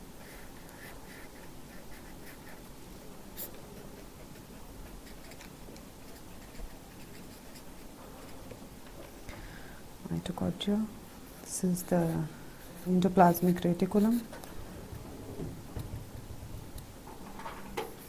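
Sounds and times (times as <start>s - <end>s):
pen scratching on paper: 0.3s - 2.7s, 3.3s - 8.5s, 11.9s - 14.3s.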